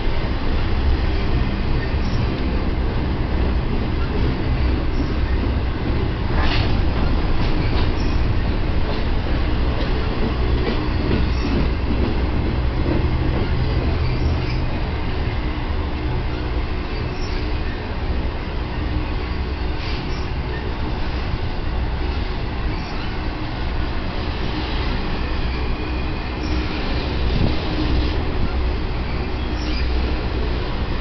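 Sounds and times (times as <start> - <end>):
steel wheels rumbling on rail: 0.0 - 31.0
faint wheel squeal: 19.2 - 20.7, 22.7 - 23.2, 29.1 - 30.0.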